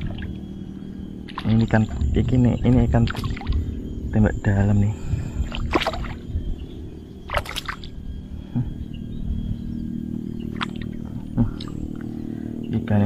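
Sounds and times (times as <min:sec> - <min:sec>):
steady low hum: 0:00.0 - 0:13.0
fish splashing in water: 0:01.3 - 0:02.0, 0:03.0 - 0:03.6, 0:05.4 - 0:06.2, 0:07.3 - 0:08.0, 0:10.5 - 0:10.9.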